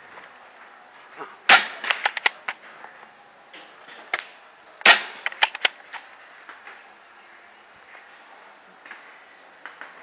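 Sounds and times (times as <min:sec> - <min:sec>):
paintball markers firing: 0:01.5 - 0:02.6, 0:04.1 - 0:06.0.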